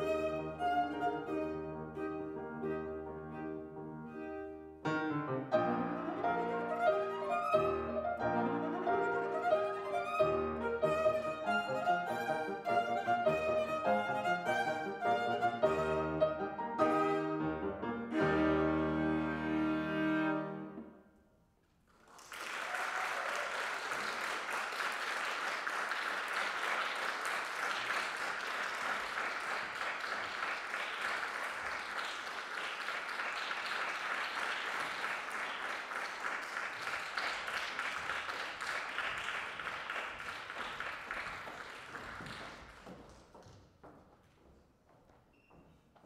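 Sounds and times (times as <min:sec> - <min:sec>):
string and piano chord: 0:00.0 - 0:20.9
audience applauding: 0:21.8 - 0:43.6.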